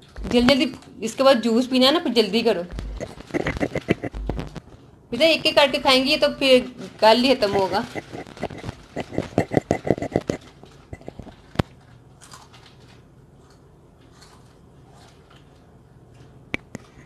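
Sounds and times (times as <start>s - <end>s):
snacks being chewed crunchily: 2.7s - 4.9s, 7.4s - 17.0s.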